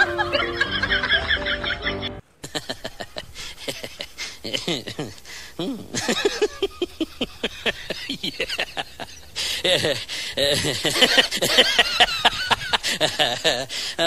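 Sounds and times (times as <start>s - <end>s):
music: 0.0s - 2.2s.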